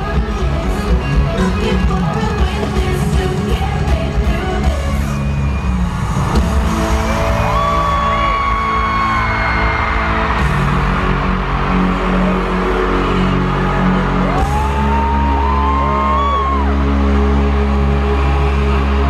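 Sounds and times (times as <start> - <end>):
live pop concert music: 0.0 - 19.0.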